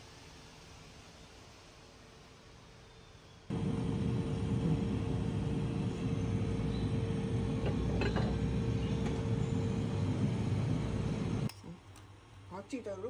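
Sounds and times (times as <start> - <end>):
low rumbling hum: 3.5 - 11.5.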